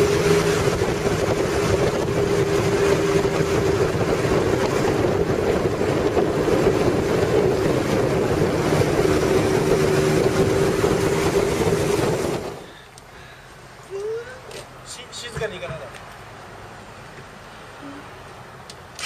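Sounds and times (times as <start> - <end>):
wind noise on microphone: 0.0 - 12.6
motorcycle engine cruising: 0.0 - 12.7.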